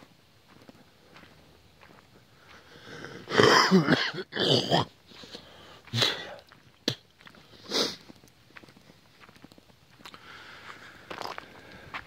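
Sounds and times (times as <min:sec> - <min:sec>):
person breathing hard: 0:02.4 - 0:03.5, 0:05.1 - 0:06.5, 0:10.1 - 0:12.0.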